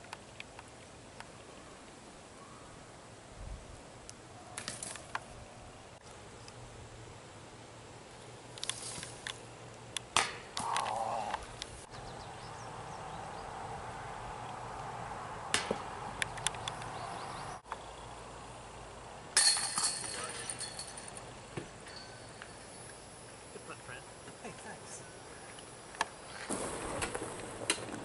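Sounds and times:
discs hitting basket chains: 19.4 - 22.7.

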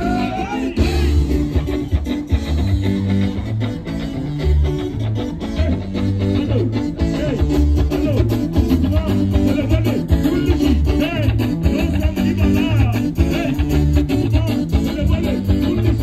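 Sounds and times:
man singing: 0.0 - 1.7, 5.4 - 16.0
live band dance music: 0.0 - 16.0.

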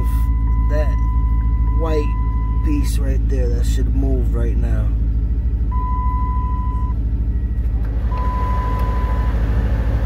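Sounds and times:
long electronic beeps: 0.0 - 2.8, 5.4 - 9.4
car engine idling: 0.0 - 10.0.

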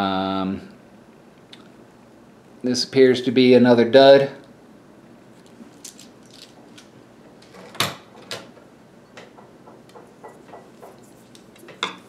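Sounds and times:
coin rolls rustling: 5.7 - 6.8.

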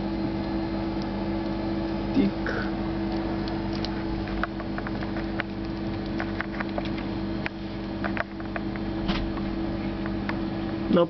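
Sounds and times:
low electrical hum: 0.0 - 11.0
faint clicks and ticks: 3.0 - 8.8.

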